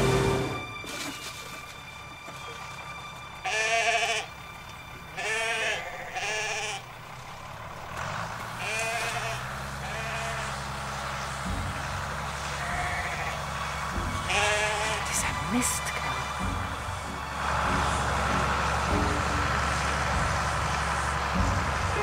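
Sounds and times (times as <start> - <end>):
tractor engine droning: 0.0 - 22.0
sheep bleating: 3.4 - 4.3, 5.2 - 6.9, 8.6 - 10.6, 12.5 - 16.8.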